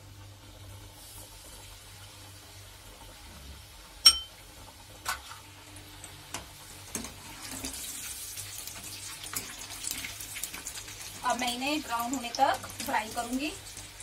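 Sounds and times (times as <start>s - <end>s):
snacks sizzling in hot oil: 0.0s - 14.0s
metal clinks against wok: 4.1s - 4.3s.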